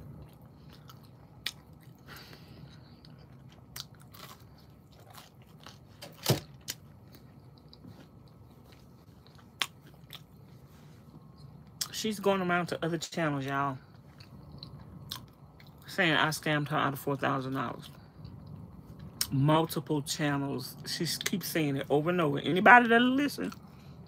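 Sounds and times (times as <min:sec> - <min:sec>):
chewing and biting pizza: 0:00.0 - 0:11.9.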